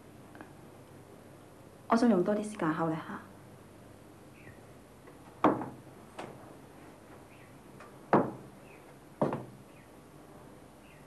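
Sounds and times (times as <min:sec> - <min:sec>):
sharp knocks: 0:05.4 - 0:06.3, 0:08.1 - 0:08.5, 0:09.2 - 0:09.6.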